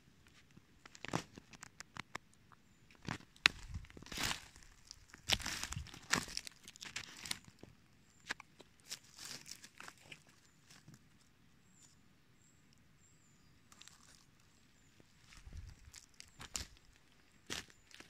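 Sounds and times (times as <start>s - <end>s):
twigs snapping: 0.8s - 2.3s, 2.9s - 7.6s, 15.2s - 18.0s
dry leaves rustling and crackling: 3.0s - 7.6s, 8.8s - 10.9s, 15.2s - 18.0s.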